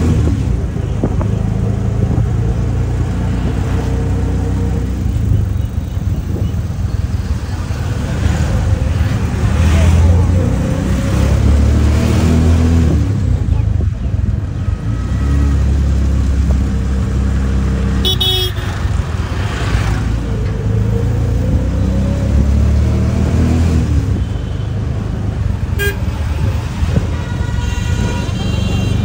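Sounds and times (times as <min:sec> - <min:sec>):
vehicle engines rumbling: 0:00.0 - 0:29.0
car horns tooting: 0:18.0 - 0:18.9, 0:25.7 - 0:29.0.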